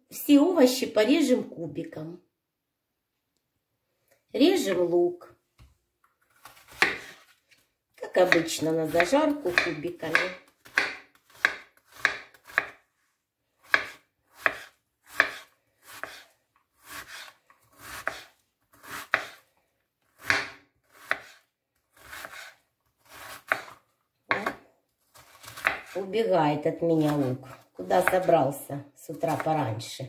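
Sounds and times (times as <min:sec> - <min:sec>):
knife chopping onion on board: 0:06.7 - 0:07.2, 0:08.2 - 0:12.8, 0:13.6 - 0:19.4, 0:20.2 - 0:21.4, 0:22.0 - 0:22.5, 0:23.1 - 0:24.6, 0:25.2 - 0:26.0, 0:27.0 - 0:28.4.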